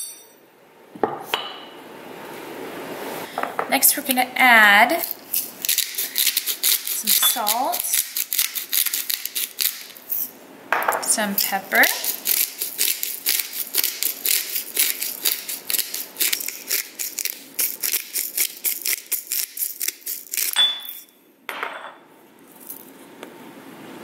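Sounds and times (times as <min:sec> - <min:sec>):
pepper mill grinding: 0:04.9 - 0:10.3, 0:11.0 - 0:21.1.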